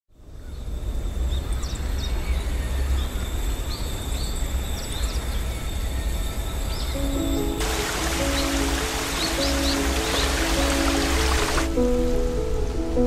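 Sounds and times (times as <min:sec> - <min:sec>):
small birds chirping: 0:01.3 - 0:11.7.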